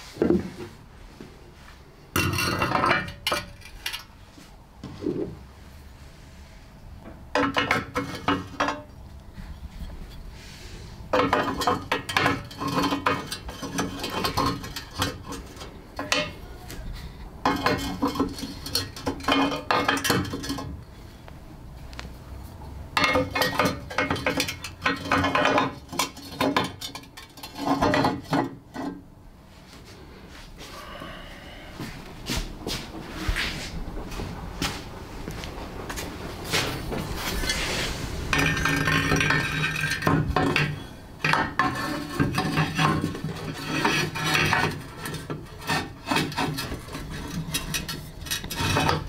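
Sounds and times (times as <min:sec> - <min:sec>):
ceramic pieces grinding and clinking: 0:02.2 - 0:04.1, 0:07.4 - 0:08.9, 0:11.1 - 0:16.4, 0:17.4 - 0:20.8, 0:23.0 - 0:28.9, 0:38.3 - 0:49.0.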